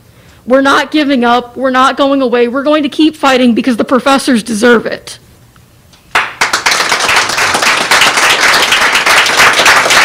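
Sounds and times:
audience applauding: 6.1s - 10.0s.

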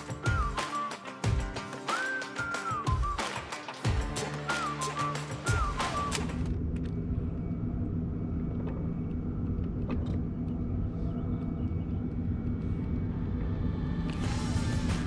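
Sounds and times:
low rumble: 6.3s - 15.0s
faint low hum: 6.5s - 14.8s.

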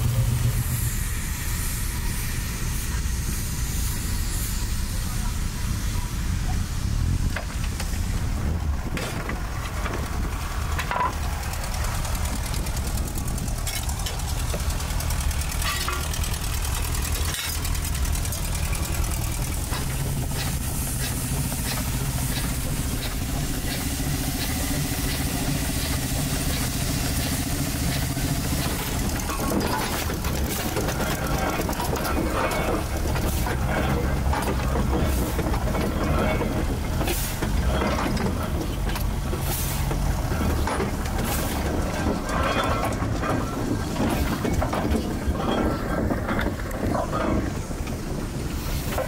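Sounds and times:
steam engine rumbling: 0.0s - 49.0s
metal clanks: 8.8s - 48.1s.

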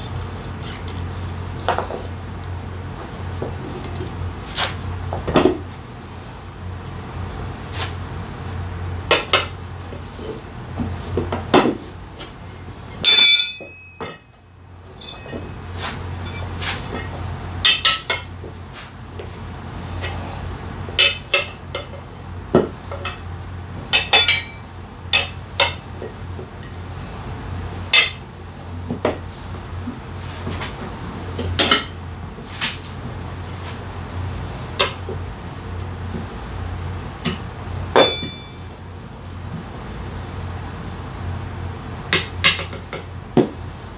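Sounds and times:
steady low hum: 0.0s - 43.9s
loud ringing metallic clang: 13.0s - 14.4s, 15.0s - 15.6s, 38.0s - 38.7s
metal tools clinking on rim: 13.0s - 14.4s, 15.0s - 15.6s, 16.2s - 16.5s, 24.0s - 24.6s.

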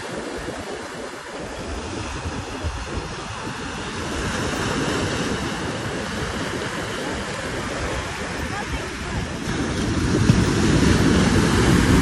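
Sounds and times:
small waves breaking: 0.0s - 12.0s
water washing through shallows: 0.0s - 12.0s.

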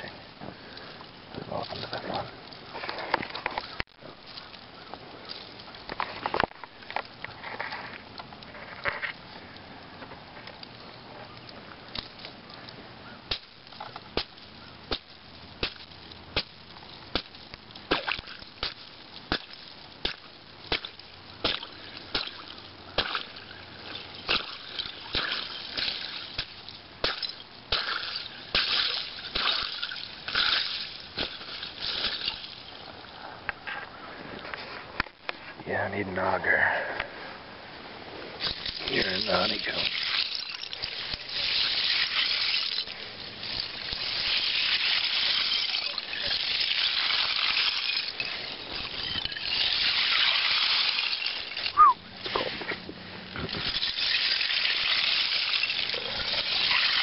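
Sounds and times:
lake ice cracking: 0.0s - 9.6s, 10.6s - 33.2s, 38.4s - 57.0s
water sloshing: 38.3s - 57.0s.

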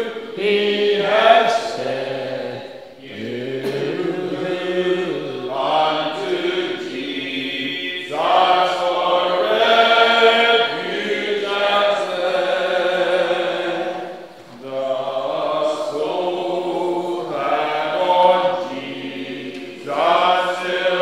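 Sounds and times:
congregation singing a hymn: 0.0s - 21.0s.

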